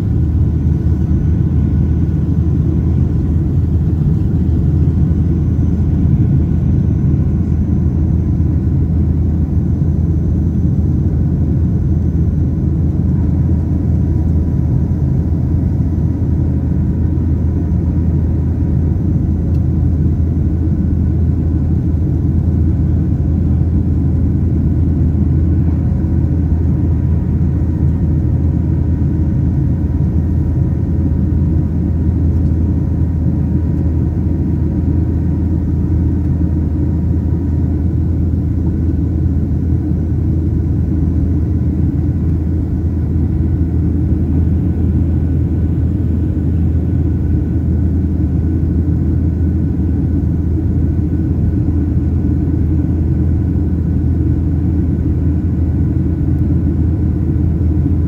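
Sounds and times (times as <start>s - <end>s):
airflow over fuselage: 0.0s - 58.0s
airplane cabin rumble: 0.0s - 58.0s
faint steady whining tones: 0.0s - 58.0s.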